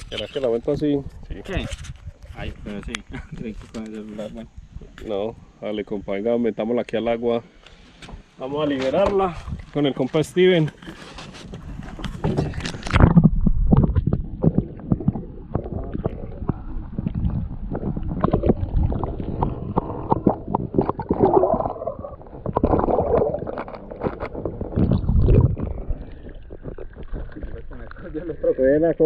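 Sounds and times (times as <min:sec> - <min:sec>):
water sloshing and gurgling: 0:07.7 - 0:29.0
low rumble: 0:12.4 - 0:28.2.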